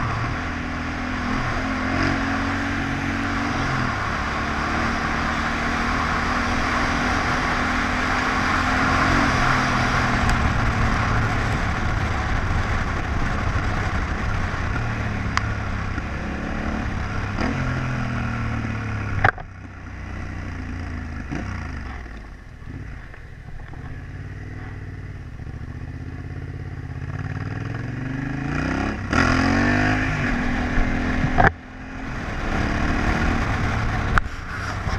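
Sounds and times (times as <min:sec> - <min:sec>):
wind noise: 0:00.0 - 0:19.4, 0:28.1 - 0:34.9
motorcycle engine running: 0:00.0 - 0:34.9.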